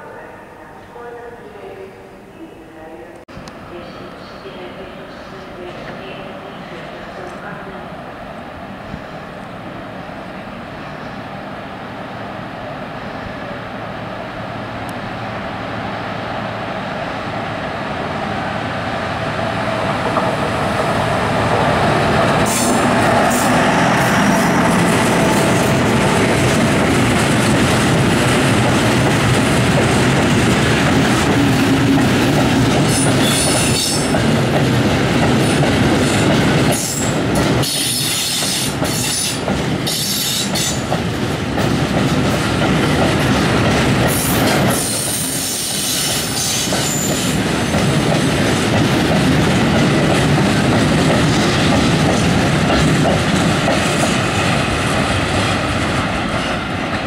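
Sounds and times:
train wheels clattering on rails: 19.9s - 57.0s.

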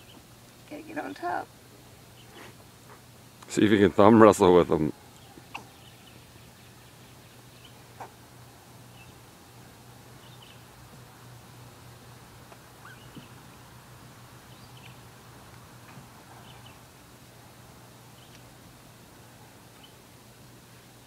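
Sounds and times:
steady low hum: 0.0s - 21.0s
faint high chirps: 12.8s - 13.4s.

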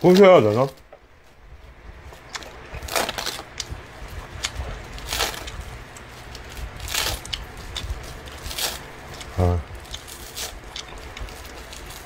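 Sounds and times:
dry seaweed crackling as torn: 0.0s - 0.8s, 2.1s - 12.0s.

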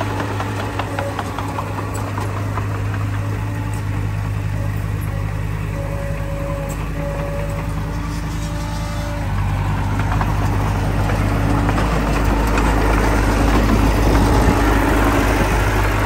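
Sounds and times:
heavy diesel engine running: 0.0s - 16.0s.

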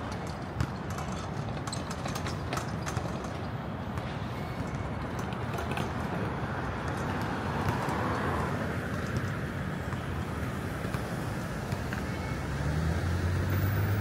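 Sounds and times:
city street traffic: 0.0s - 14.0s
vehicle passing: 6.3s - 14.0s.

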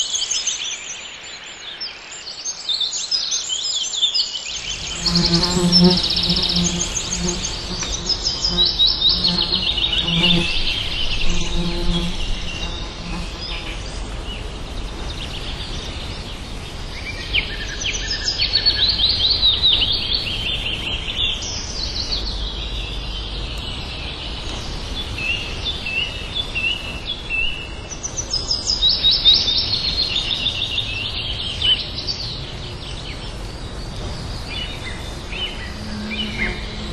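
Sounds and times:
songbirds chirping: 0.0s - 36.9s
low pulsing tone: 34.9s - 36.9s.

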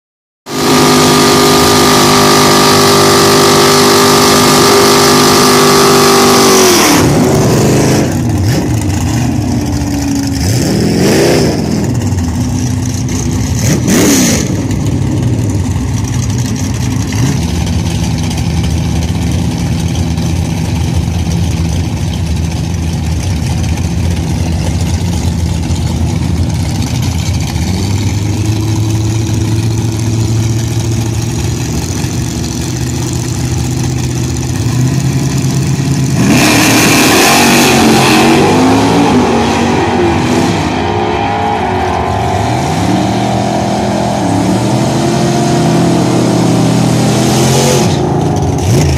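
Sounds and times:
car engine revving: 0.5s - 48.9s
car engine idling: 7.0s - 36.4s, 48.0s - 48.9s.

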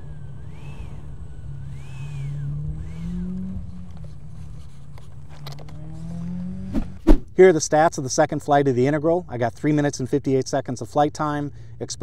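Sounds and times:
electric ducted fan whining: 0.0s - 7.0s.

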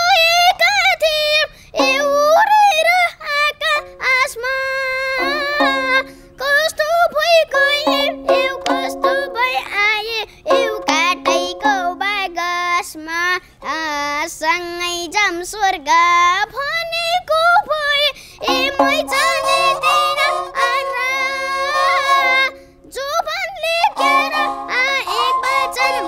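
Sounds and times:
boy singing: 0.0s - 26.0s
bowed fiddle: 5.2s - 6.3s, 18.4s - 22.6s, 23.9s - 26.0s.

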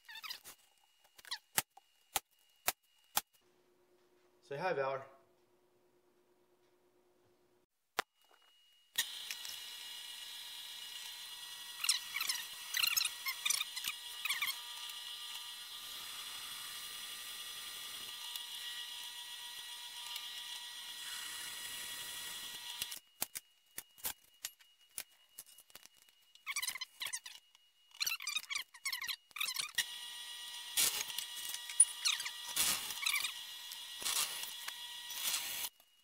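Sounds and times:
drill press whine: 8.2s - 25.4s, 29.2s - 36.0s
drill bit squealing on metal: 11.7s - 15.4s, 26.4s - 35.7s.

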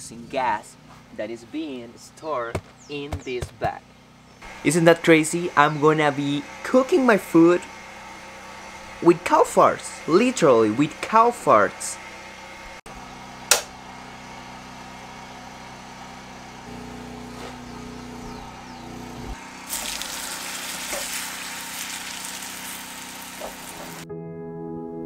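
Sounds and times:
gas burner ignition click: 13.5s - 13.7s
frying pan sizzling: 19.4s - 24.0s
gas burner hiss: 19.7s - 24.0s.

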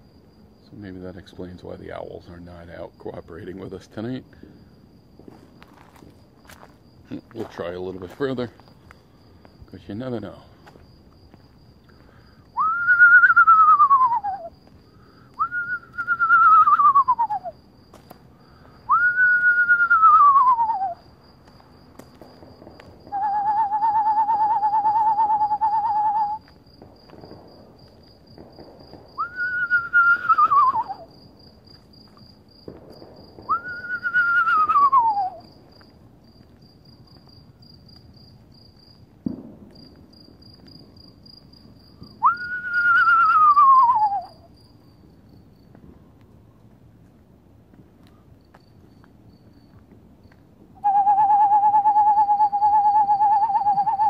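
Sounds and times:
insects pulsing: 0.0s - 54.0s
person whistling owl calls: 12.5s - 14.6s, 15.3s - 17.6s, 18.9s - 21.0s, 23.1s - 26.5s, 29.2s - 31.1s, 33.5s - 35.5s, 42.2s - 44.5s, 50.8s - 54.0s.

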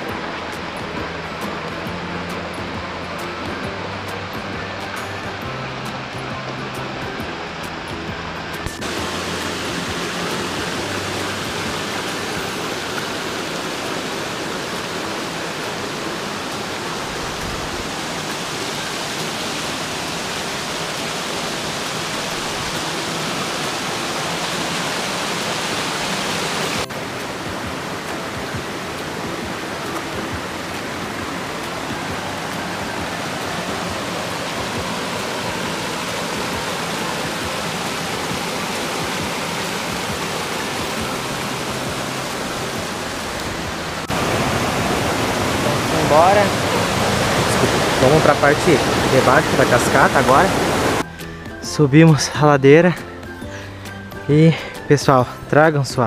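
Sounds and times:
waterfall rushing: 0.0s - 52.1s.

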